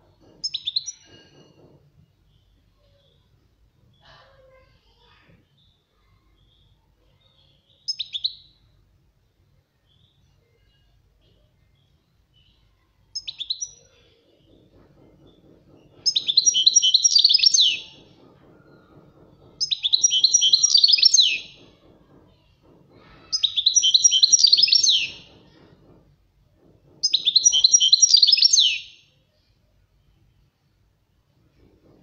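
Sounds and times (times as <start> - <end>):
goldfinch twittering song: 16.0 - 18.0, 19.6 - 21.6, 23.3 - 25.3, 27.0 - 28.9.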